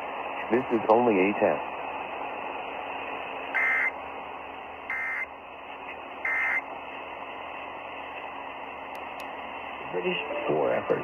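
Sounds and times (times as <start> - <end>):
radio hiss: 0.0 - 11.0
buzzy digital data tones: 3.5 - 4.0, 4.9 - 5.3, 6.2 - 6.6.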